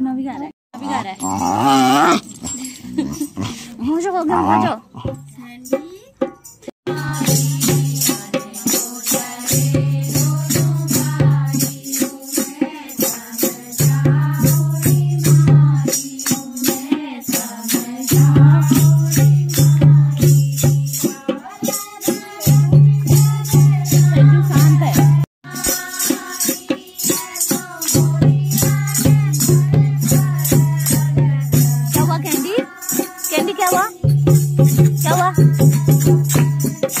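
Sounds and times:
rattling shaker beat: 0.0 - 37.0
person singing: 35.0 - 37.0.

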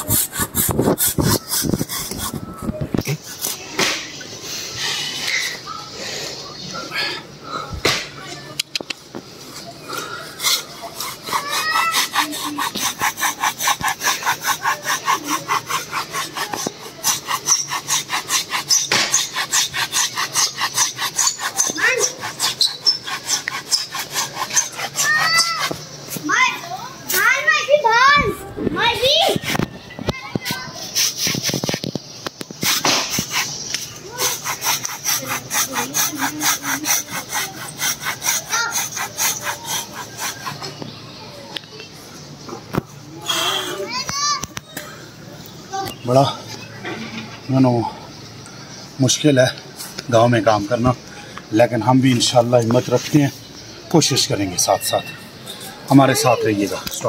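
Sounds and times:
hand saw cutting tree trunk: 0.0 - 4.2, 9.5 - 26.5, 30.4 - 41.0.

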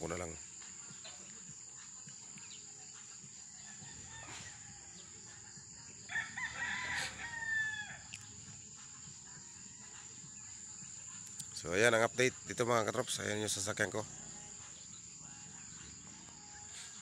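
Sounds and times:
high-pitched insect drone: 0.0 - 17.0
rooster crowing: 3.5 - 5.4, 6.0 - 8.2.

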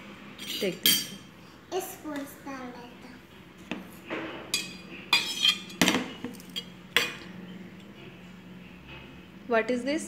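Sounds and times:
spoon clinking against steel bowls: 0.4 - 1.2, 4.5 - 7.3.

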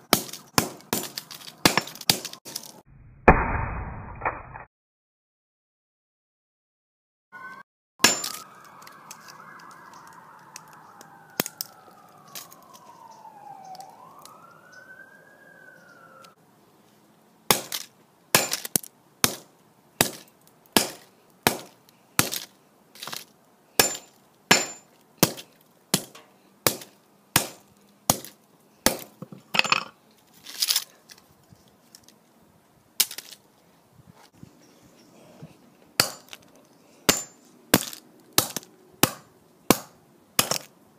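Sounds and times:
hammer smashing phone on concrete: 0.1 - 2.6, 8.0 - 8.4, 17.5 - 20.2, 20.8 - 22.5, 23.8 - 29.9, 36.0 - 36.4, 37.1 - 40.7
siren wailing: 7.3 - 16.4
glass cracking and shattering: 8.0 - 10.7.

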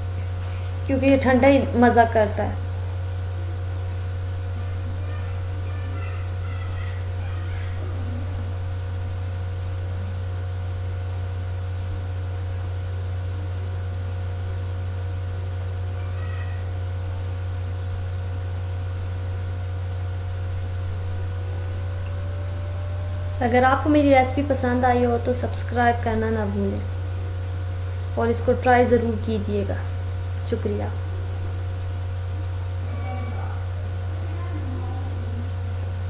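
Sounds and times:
low electrical hum: 0.0 - 36.0
faint bird calls: 4.6 - 8.7, 16.0 - 16.8.

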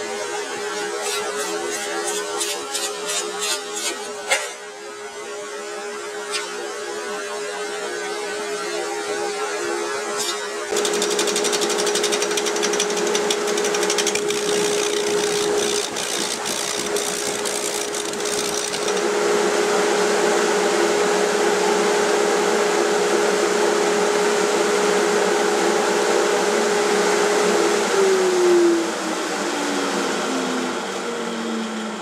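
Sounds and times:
turning tool cutting wood: 0.8 - 4.2, 10.2 - 19.1
lathe motor hum: 10.2 - 19.4.

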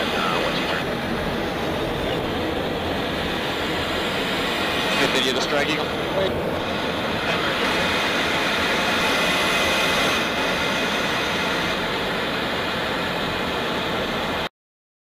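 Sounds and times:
jet aircraft rumble: 0.0 - 14.5.

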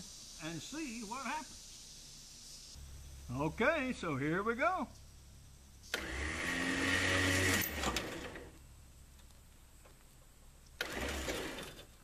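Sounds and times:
winch motor whirring: 5.9 - 8.6, 10.8 - 11.9.

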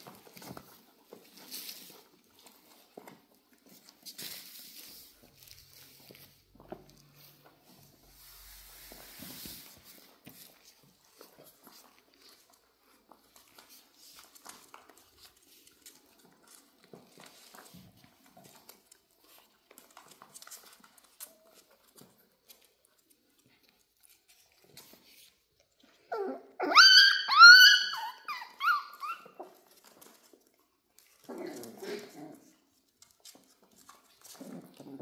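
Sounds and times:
paws tapping and scuffling: 0.0 - 35.0
high-pitched puppy yelps: 26.1 - 29.6.

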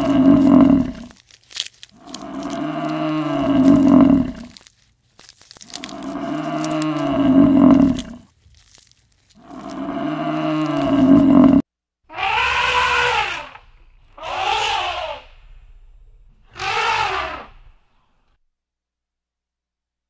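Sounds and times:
buffalo bellowing: 0.0 - 1.1, 2.0 - 4.6, 5.7 - 8.2, 9.4 - 15.2
elephant calf calling: 14.2 - 15.2.

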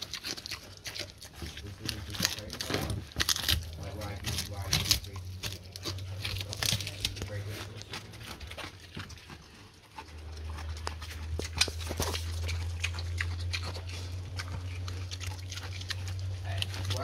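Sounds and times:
pig chewing pumpkin: 0.0 - 17.0
steady low hum: 0.0 - 17.0.

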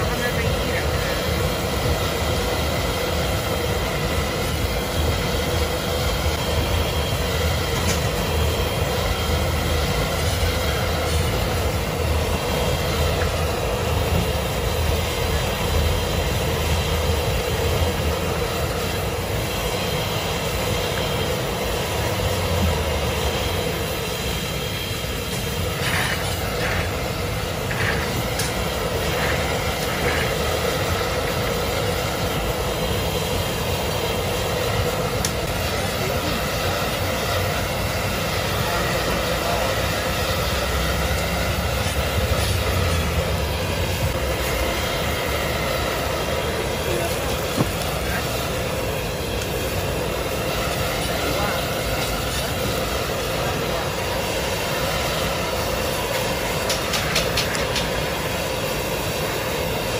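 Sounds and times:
constant hum: 0.0 - 59.9
steady rumbling noise: 0.0 - 59.9.

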